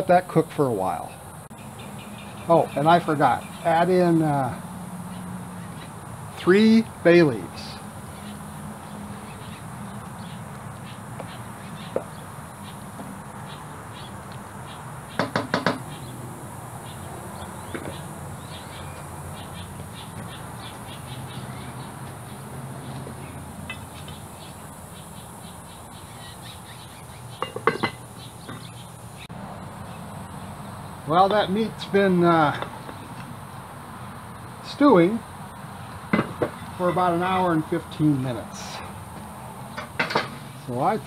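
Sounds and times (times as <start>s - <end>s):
sharp knocks: 15.2s - 15.9s, 36.1s - 36.6s.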